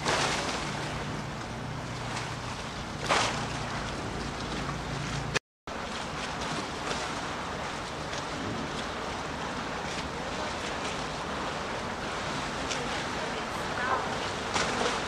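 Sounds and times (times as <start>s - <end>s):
rushing water: 0.0s - 15.0s
wind: 0.0s - 15.0s.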